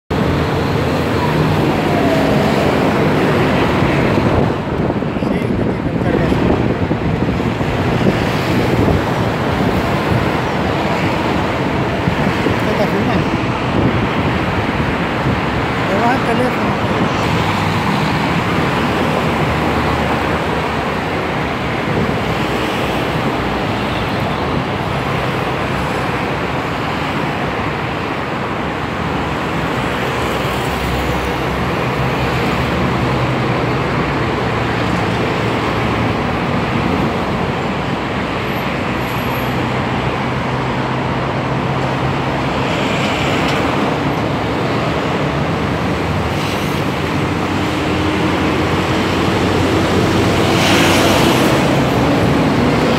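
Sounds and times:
road traffic noise: 0.0s - 52.9s
low engine drone: 0.1s - 8.4s.

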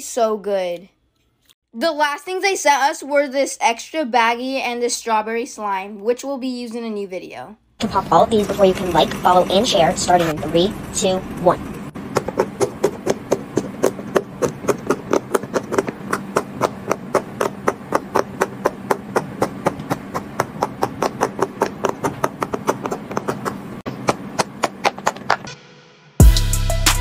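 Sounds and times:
fidget toy bubbles popping: 12.1s - 25.5s.

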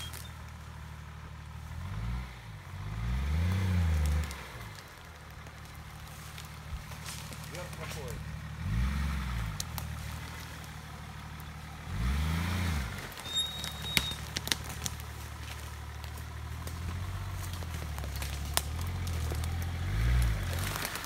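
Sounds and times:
twigs and branches snapping: 0.0s - 0.6s, 3.4s - 8.3s, 9.4s - 11.6s, 12.9s - 21.0s
engine running at low revs: 0.0s - 21.0s.

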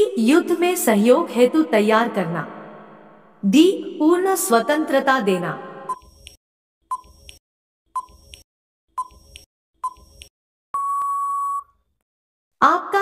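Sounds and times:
long steady beep: 10.8s - 11.8s
short beeps: 10.8s - 11.8s.

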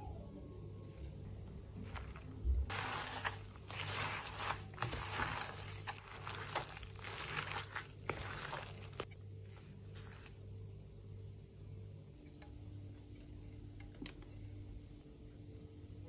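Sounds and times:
batter mixing wet rustling: 0.9s - 11.1s.

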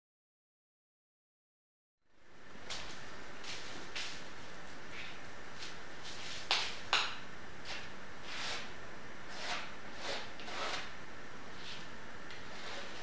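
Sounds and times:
palette knife scraping canvas: 7.6s - 8.7s, 9.3s - 10.9s, 11.6s - 13.0s.

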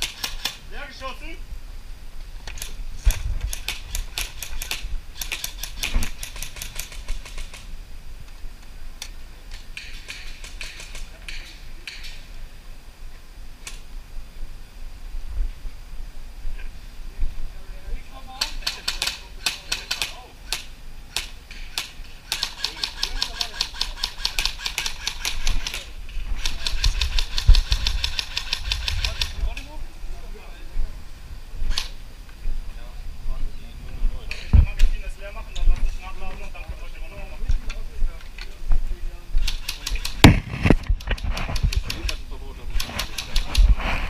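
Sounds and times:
airsoft guns firing: 0.0s - 0.6s, 3.5s - 7.7s, 9.7s - 12.2s, 18.4s - 29.4s, 39.4s - 40.8s.

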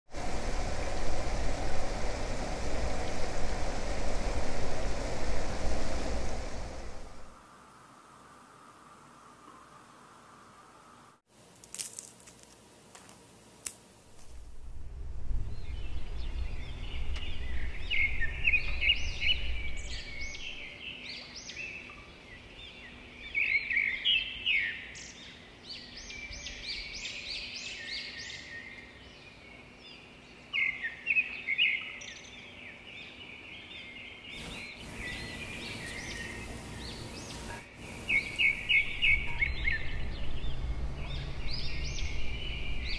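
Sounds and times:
low background rumble: 14.2s - 20.6s, 34.4s - 42.9s
small birds chirping: 15.5s - 42.9s.

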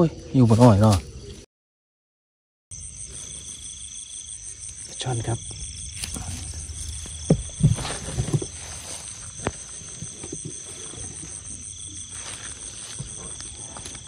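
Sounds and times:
crickets and insects chirping: 0.0s - 1.5s, 2.7s - 14.0s
dull thumps: 5.4s - 11.4s.

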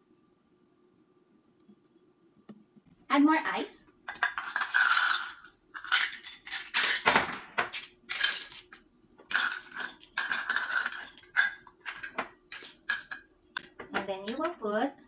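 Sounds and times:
ice cubes clinking into glass: 4.1s - 13.3s.

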